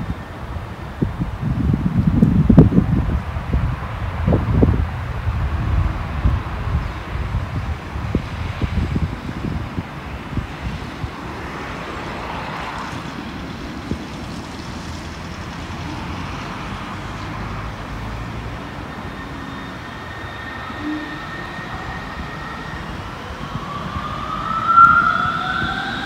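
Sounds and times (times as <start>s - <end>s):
distant train low rumble: 0.0s - 26.0s
thin high whine: 18.2s - 26.0s.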